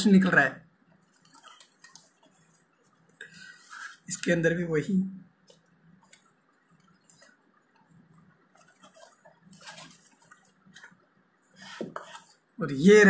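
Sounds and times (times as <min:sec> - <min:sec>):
cardboard box scraping and tapping: 0:11.6 - 0:12.3.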